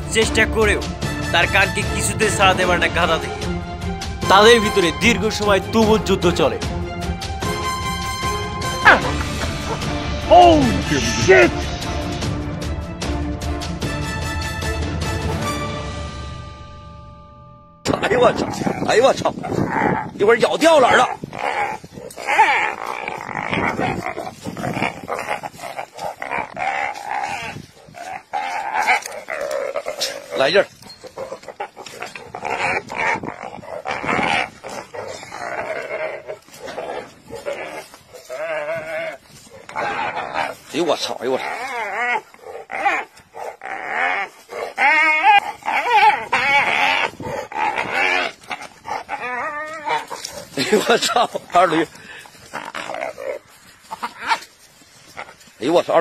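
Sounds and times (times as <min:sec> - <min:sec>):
hyena squealing: 0:18.1 - 0:56.0.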